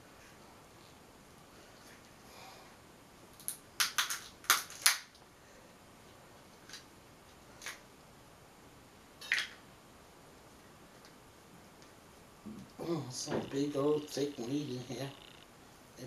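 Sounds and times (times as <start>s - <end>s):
crab shell cracking: 3.4s - 5.2s.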